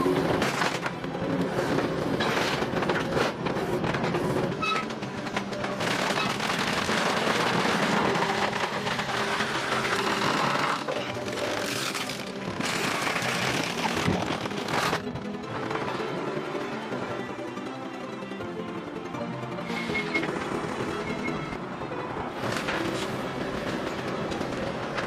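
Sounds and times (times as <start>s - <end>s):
background music: 0.0s - 25.0s
metal cracking and crackling: 4.6s - 15.3s.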